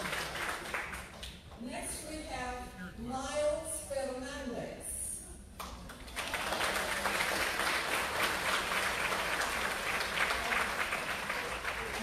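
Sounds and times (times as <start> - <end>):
audience applauding: 0.0 - 1.4, 5.9 - 12.0.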